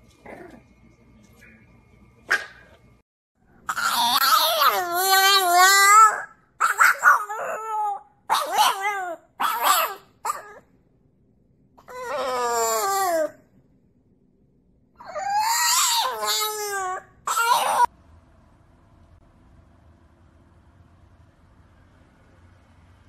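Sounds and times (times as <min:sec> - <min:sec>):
puppy howling and whining: 0:03.7 - 0:10.7, 0:11.8 - 0:13.4, 0:15.0 - 0:17.9.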